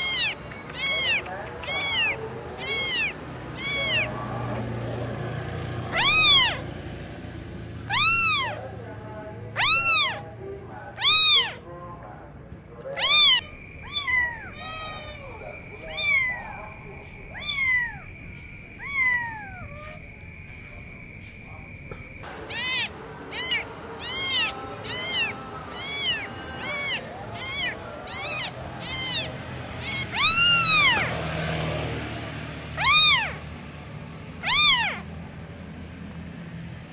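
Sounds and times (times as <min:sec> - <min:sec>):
kitten meowing: 0:00.0 - 0:04.8, 0:05.8 - 0:06.7, 0:07.8 - 0:08.7, 0:09.5 - 0:10.3, 0:10.9 - 0:11.6, 0:12.8 - 0:31.2, 0:32.8 - 0:33.4, 0:34.4 - 0:35.1.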